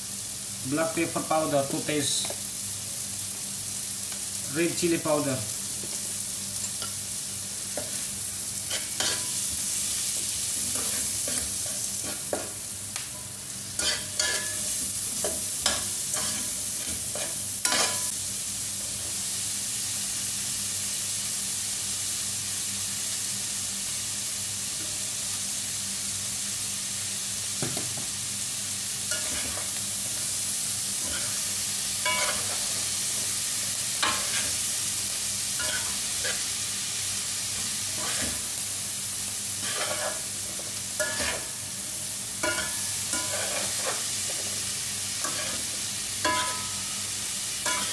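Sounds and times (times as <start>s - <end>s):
vegetables sizzling in oil: 0.0s - 47.9s
utensil scraping a wok: 7.6s - 18.1s, 29.1s - 30.2s, 31.0s - 33.4s, 34.0s - 34.7s, 35.6s - 36.6s, 37.6s - 38.5s, 39.5s - 41.8s, 42.4s - 47.9s.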